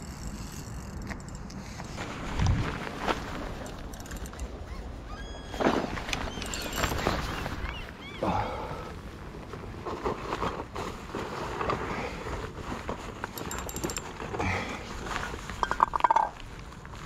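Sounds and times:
fishing reel clicking: 0.0 - 1.6.

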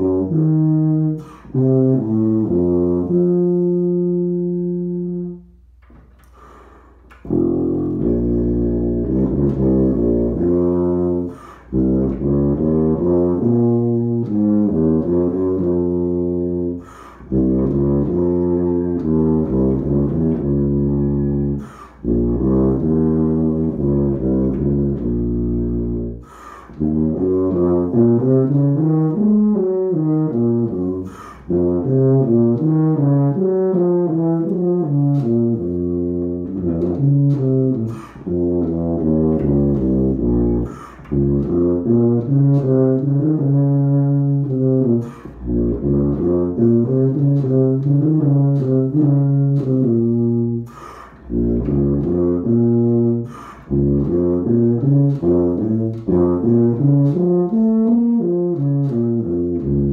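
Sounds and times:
tuba playing solo: 0.0 - 59.9
quick breath: 1.2 - 1.6, 6.2 - 7.2, 11.3 - 11.8, 16.8 - 17.3, 21.6 - 22.1, 26.2 - 26.8, 31.0 - 31.5, 37.9 - 38.3, 40.6 - 41.1, 45.0 - 45.4, 50.6 - 51.3, 53.2 - 53.7.

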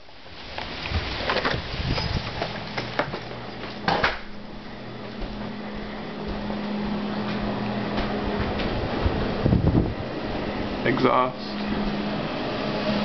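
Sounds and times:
mechanical fan hum: 0.0 - 13.0
footsteps: 2.2 - 9.2.

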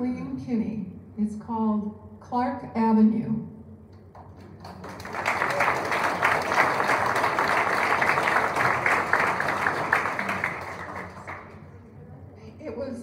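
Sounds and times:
audience applauding: 4.3 - 11.7.

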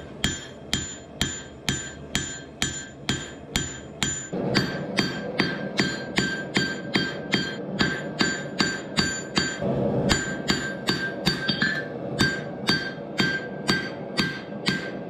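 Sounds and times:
hammer ringing on hot steel: 0.0 - 15.0.

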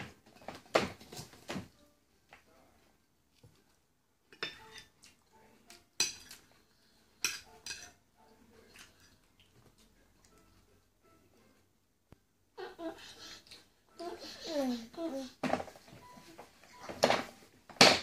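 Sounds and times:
tableware clinking and knocking: 4.3 - 5.0, 6.0 - 6.4, 7.2 - 8.0, 16.8 - 18.0.

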